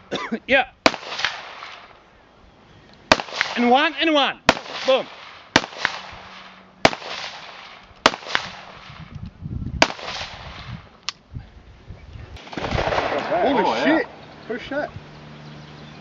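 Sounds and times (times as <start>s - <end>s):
rifle shots echoing: 0.8s - 2.0s, 3.1s - 9.0s, 9.8s - 10.7s, 12.4s - 14.2s.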